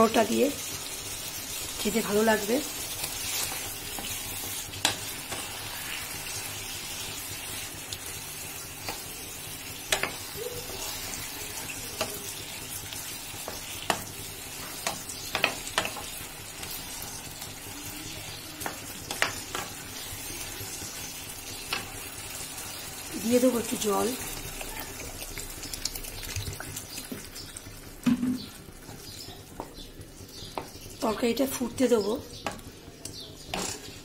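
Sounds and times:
food sizzling in oil: 0.0 - 34.0
spatula scraping pan: 2.3 - 7.7, 8.8 - 17.3, 33.5 - 34.0.

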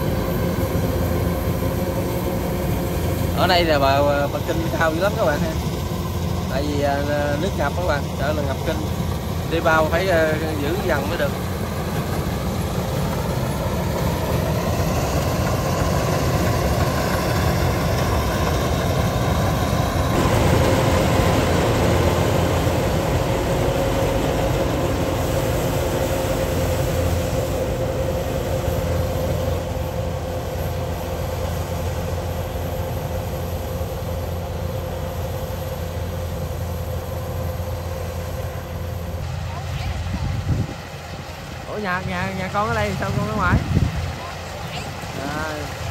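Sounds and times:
combine harvester engine droning: 0.0 - 45.9
machinery whine: 0.0 - 45.9.

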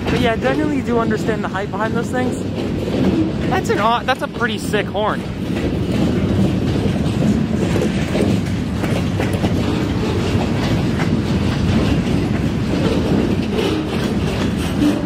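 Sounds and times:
steel wheels rumbling on rail: 0.0 - 15.0
wheels clicking over rail joints: 0.0 - 15.0.

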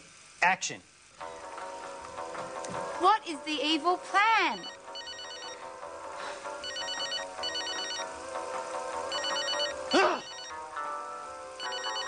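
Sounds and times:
phone ringtone trilling: 4.5 - 5.7, 6.6 - 8.1, 9.1 - 10.6, 11.6 - 12.0.

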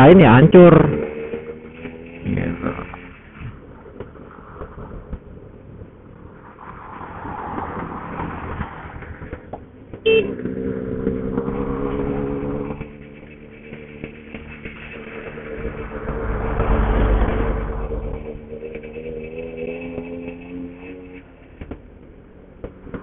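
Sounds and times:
road and wind noise: 0.0 - 23.0
short sharp tone: 10.0 - 10.4.

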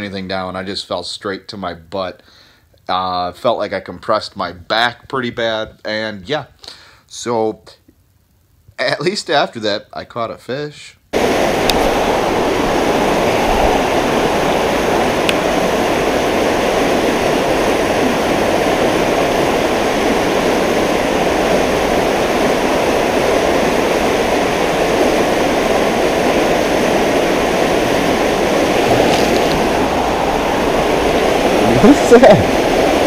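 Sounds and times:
river water rushing over rocks: 11.2 - 33.0.

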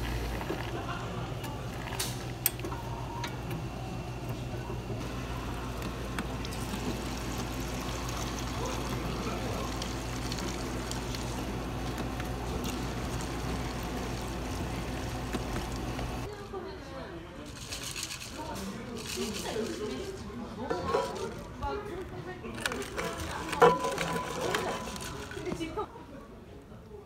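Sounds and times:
low machine hum: 0.0 - 16.3
water pouring into a plastic cup: 5.0 - 16.2.

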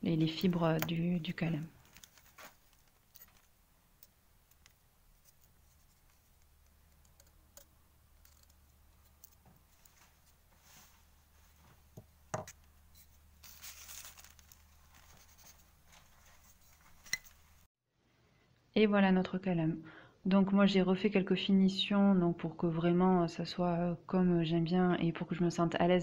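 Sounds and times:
scratchy rustle: 13.0 - 17.5.

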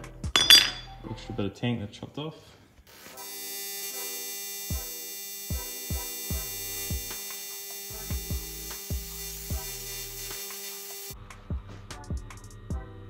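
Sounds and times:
welding arc buzzing: 2.9 - 11.2.

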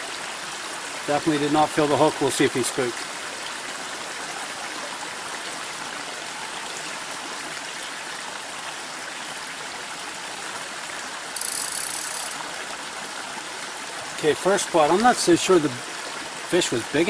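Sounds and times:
stream rushing over cascades: 0.0 - 17.0
high-pitched hiss: 11.4 - 12.4.

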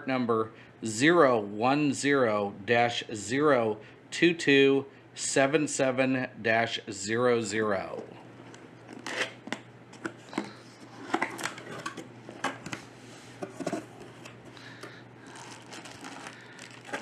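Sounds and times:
plastic and bubble wrap rustling: 15.2 - 17.0.

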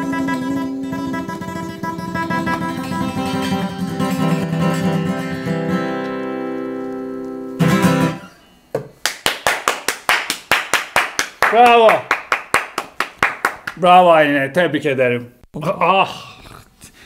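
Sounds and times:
acoustic guitar strumming: 0.0 - 8.6
hand clapping: 9.0 - 13.8.

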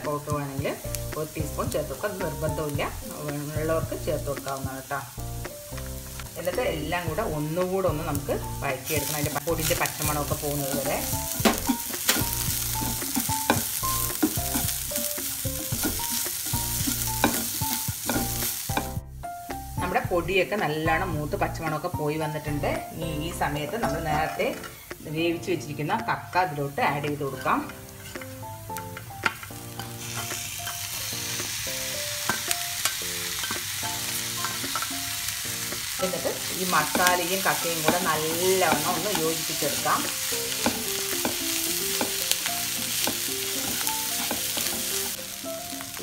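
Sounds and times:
onions and spices sizzling in pan: 0.0 - 46.0
spatula scraping pan: 8.9 - 19.0, 27.3 - 28.4, 32.2 - 45.2.

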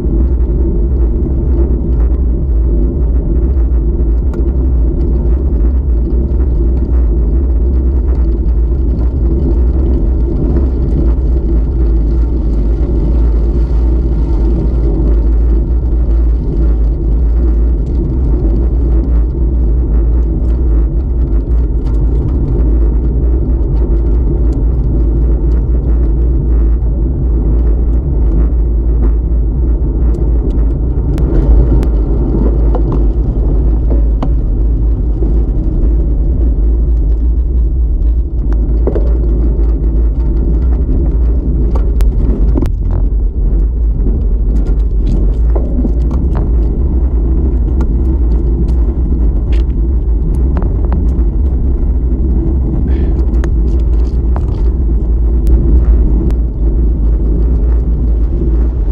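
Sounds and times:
tyre noise on asphalt: 0.0 - 58.9
wind buffeting microphone: 0.0 - 58.9.

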